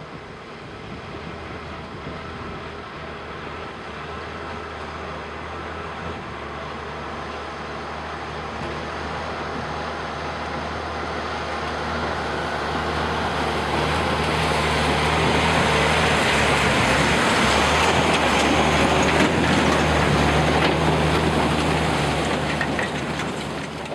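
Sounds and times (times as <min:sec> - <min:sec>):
diesel truck engine pulling: 0:00.0 - 0:23.9
water rushing and splashing: 0:11.4 - 0:23.6.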